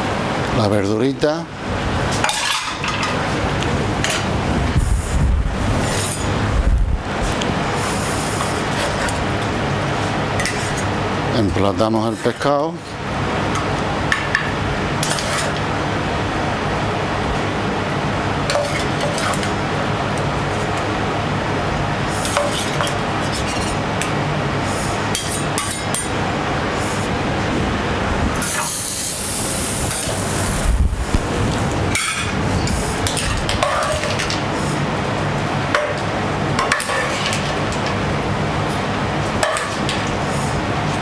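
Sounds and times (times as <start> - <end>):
kitchen background hum: 0.0 - 41.0
loud hiss: 28.4 - 31.3.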